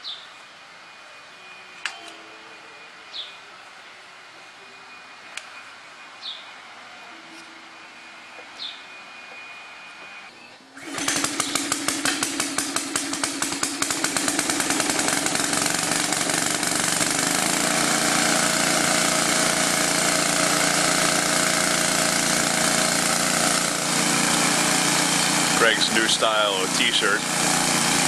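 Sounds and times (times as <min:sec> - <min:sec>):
electric air compressor running: 0:10.8 - 0:28.0.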